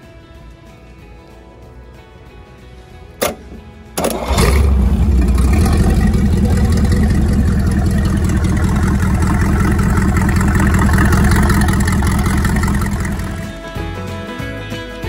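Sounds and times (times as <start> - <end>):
boat engine running: 4.0 - 13.6
water splashing from exhaust: 4.0 - 13.6.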